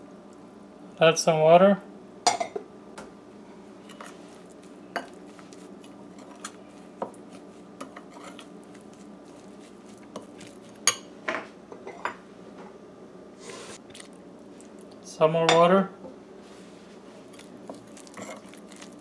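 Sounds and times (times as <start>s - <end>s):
metal spoon scraping bowl: 7.8s - 8.5s.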